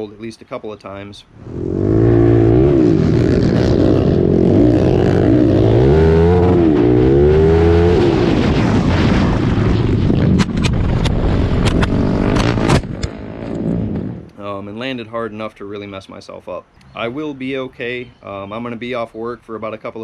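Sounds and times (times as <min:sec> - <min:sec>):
noisy rush: 0:01.3 - 0:14.5
quad engine revving: 0:01.4 - 0:08.6, 0:11.0 - 0:14.3.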